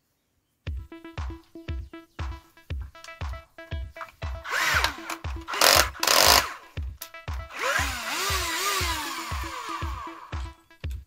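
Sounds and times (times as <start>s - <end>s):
cordless drill motor whirring: 4.5s - 6.6s, 7.5s - 10.3s.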